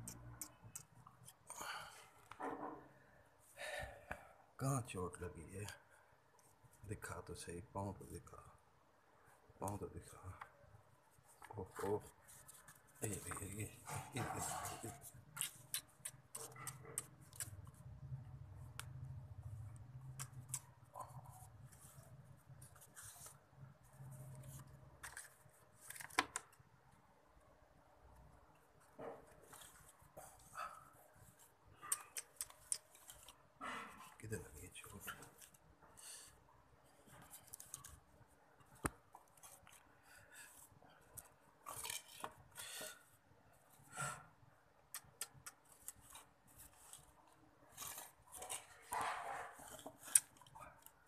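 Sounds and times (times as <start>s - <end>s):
clicks and rustles of handling: 19.8s - 26.7s, 36.9s - 42.6s, 45.0s - 51.0s.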